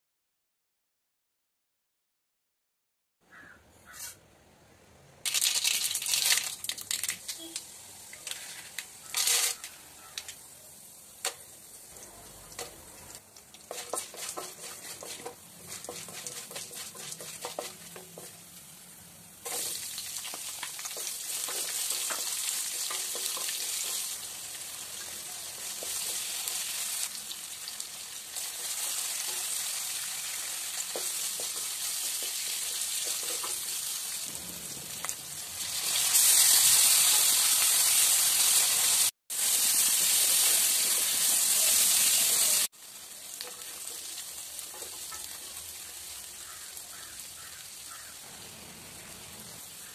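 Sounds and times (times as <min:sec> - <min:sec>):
oil crackling: 0:05.2 - 0:18.7, 0:19.4 - 0:49.9
seeds sizzling in hot oil: 0:05.2 - 0:49.9
onions frying with steady sizzle: 0:05.3 - 0:49.9
wooden spatula stirring: 0:13.5 - 0:18.5, 0:30.8 - 0:33.7.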